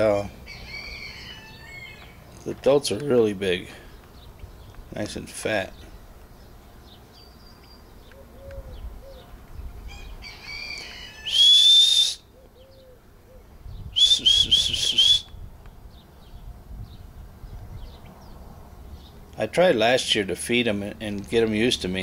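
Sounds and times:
person whistling: 11.3s - 12.2s, 14.0s - 15.3s.

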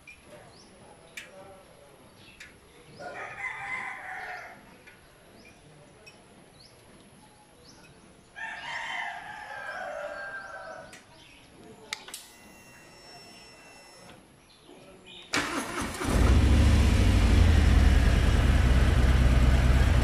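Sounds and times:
rooster crowing: 3.0s - 4.6s, 8.4s - 10.8s.

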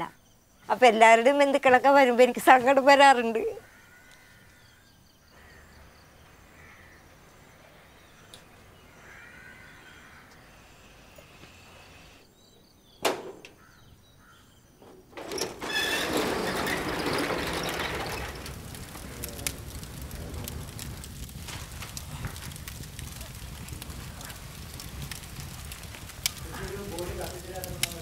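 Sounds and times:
wood fire crackling: 1.2s - 12.3s, 13.5s - 28.0s
rolling shutter rattling: 14.8s - 28.0s.

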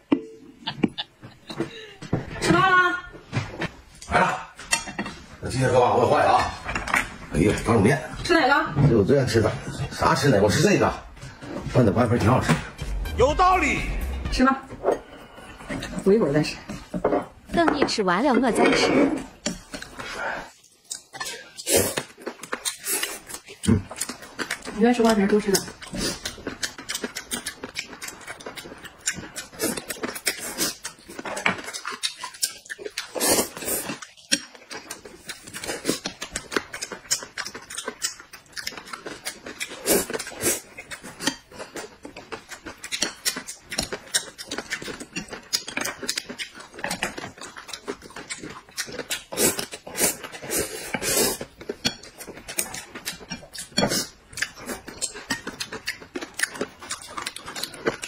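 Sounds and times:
wet chewing and smacking: 19.4s - 58.0s
noodles slurped: 48.9s - 51.6s.

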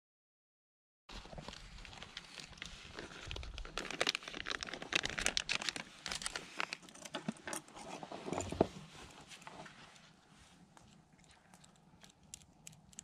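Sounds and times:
food packet crinkling: 1.2s - 6.9s.

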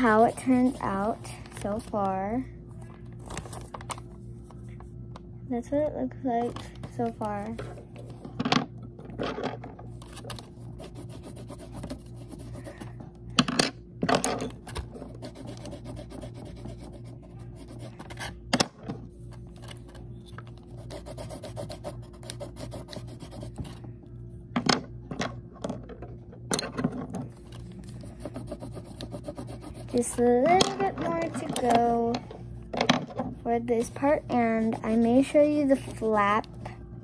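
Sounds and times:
pencil scribbling on paper: 0.0s - 1.2s, 10.8s - 12.8s, 15.1s - 18.2s, 20.8s - 23.8s, 28.0s - 30.2s, 33.8s - 35.7s.

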